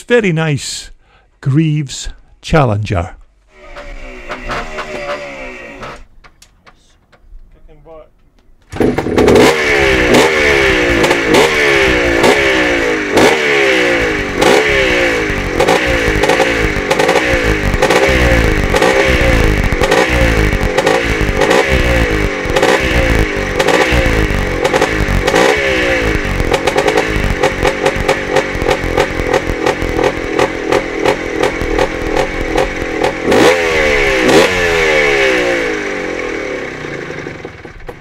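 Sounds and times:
two-stroke engine revving: 3.5s - 6.1s, 8.7s - 38.0s.

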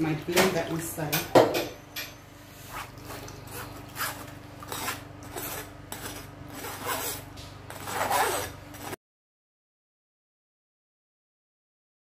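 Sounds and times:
spoon scraping through mesh sieve: 2.6s - 9.0s.

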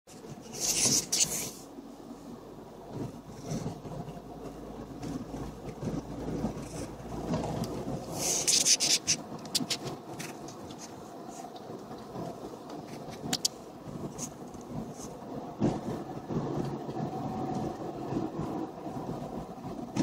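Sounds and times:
trolleybus rumble: 0.1s - 20.0s
sharp clicks and crackles: 3.0s - 15.8s.

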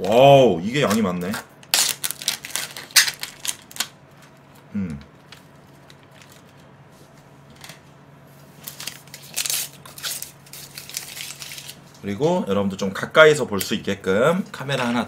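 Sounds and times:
plastic film crinkling: 1.6s - 6.7s, 8.5s - 12.0s.

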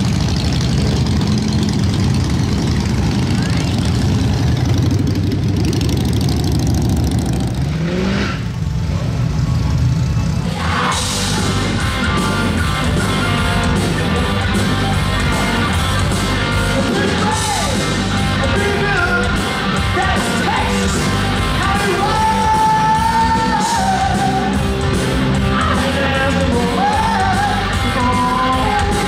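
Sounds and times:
rock music with singing: 10.2s - 29.0s.

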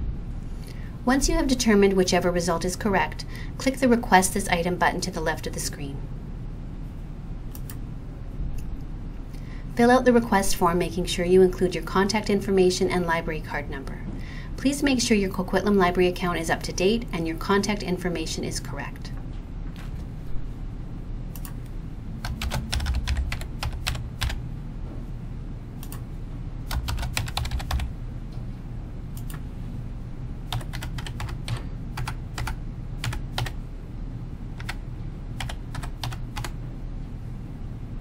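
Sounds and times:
low steady hum: 0.0s - 38.0s
computer keyboard typing: 21.3s - 24.4s, 25.8s - 26.0s, 26.7s - 27.9s, 30.5s - 33.6s, 34.6s - 34.8s, 35.4s - 36.6s.

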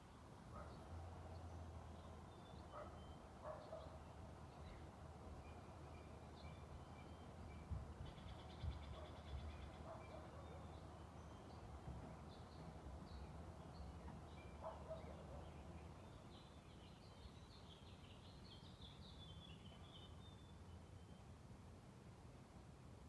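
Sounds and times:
small bird chirps and calls: 6.0s - 21.2s.

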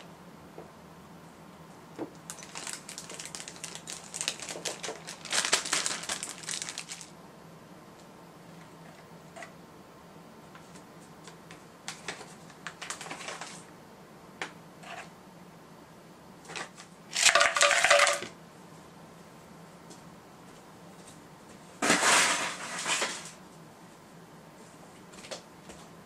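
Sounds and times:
ice cubes clattering against plastic: 2.3s - 7.1s, 16.5s - 18.3s, 21.8s - 23.4s.

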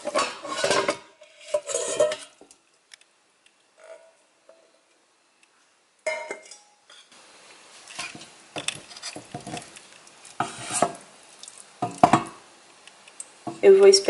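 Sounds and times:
metal pot lid clattering: 0.0s - 2.4s, 6.1s - 7.0s
wooden spoon knocking in metal pot: 11.8s - 12.4s.

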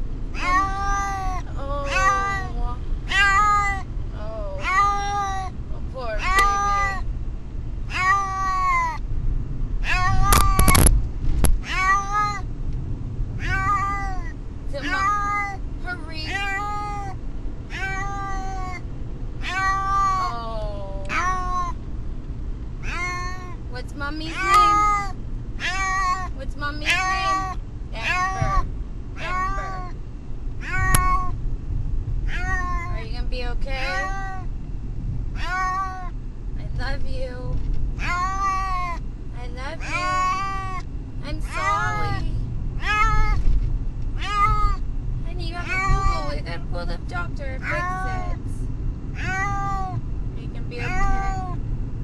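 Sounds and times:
low rumble: 0.0s - 52.0s
cat meowing in distress: 0.4s - 5.6s, 6.2s - 7.0s, 7.9s - 9.0s, 9.8s - 10.9s, 11.6s - 12.4s, 13.4s - 15.6s, 16.2s - 18.8s, 19.4s - 21.8s, 22.8s - 23.6s, 24.3s - 30.0s, 30.6s - 31.4s, 32.2s - 33.0s, 33.8s - 34.5s, 35.4s - 36.1s, 38.0s - 39.0s, 39.8s - 43.5s, 44.2s - 44.9s, 45.6s - 46.4s, 47.6s - 48.4s, 49.2s - 50.0s, 50.8s - 51.6s.

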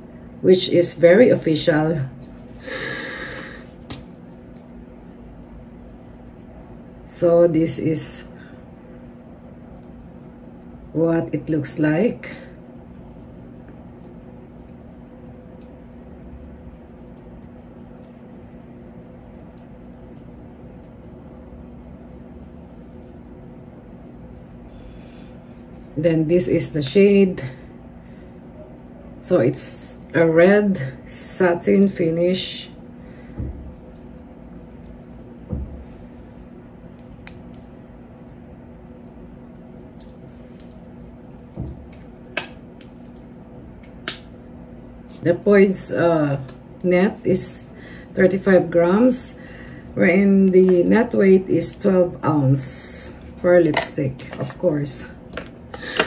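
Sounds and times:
mechanical room hum: 0.0s - 56.0s.

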